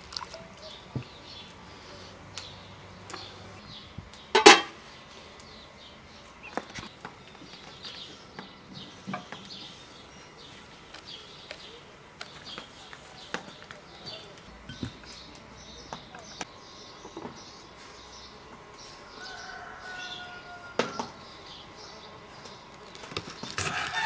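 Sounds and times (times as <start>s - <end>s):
metal pots clanging: 4.3s - 4.8s.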